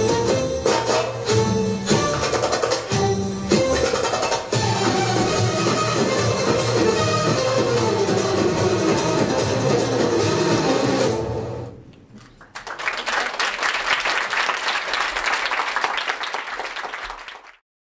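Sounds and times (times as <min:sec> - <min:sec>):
belly dance music: 0:00.0 - 0:11.4
audience applauding: 0:12.2 - 0:17.6.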